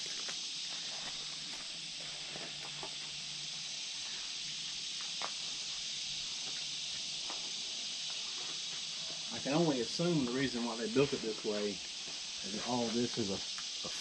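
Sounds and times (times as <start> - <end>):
footsteps crunching on leaves: 0.0 - 3.1
insect chorus hissing: 0.0 - 14.0.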